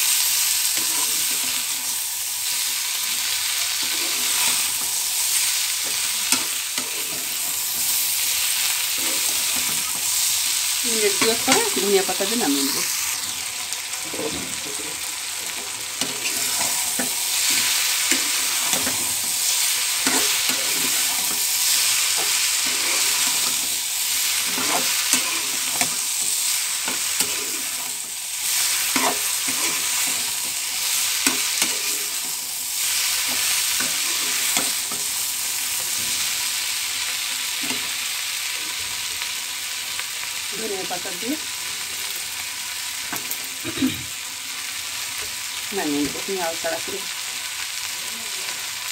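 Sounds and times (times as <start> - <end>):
beans sizzling in pan: 0.0 - 48.9
metal spatula scraping pan: 0.7 - 1.7, 16.0 - 32.4.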